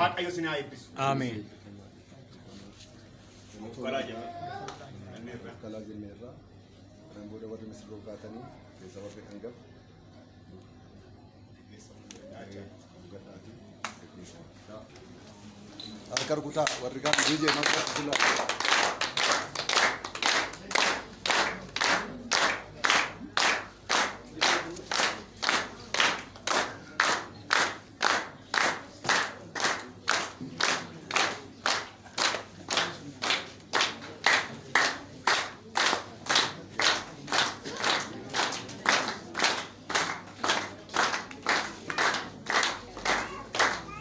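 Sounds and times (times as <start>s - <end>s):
group clapping in rhythm: 13.8s - 14.0s, 16.2s - 44.0s.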